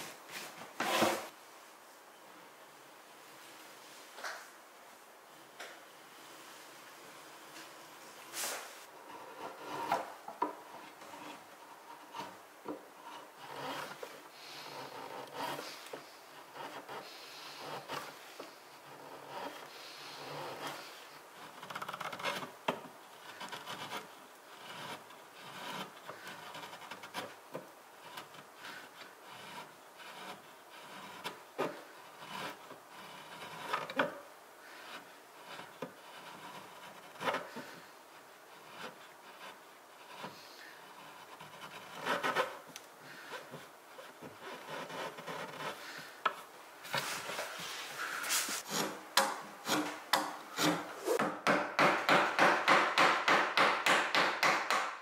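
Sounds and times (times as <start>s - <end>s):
chisel scraping wood: 0.0s - 1.3s, 8.3s - 54.9s.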